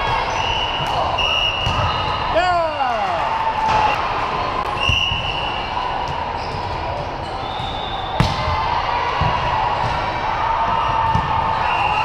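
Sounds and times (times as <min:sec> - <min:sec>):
sports hall din: 0:00.0 - 0:12.0
volleyball smack: 0:08.2 - 0:08.6.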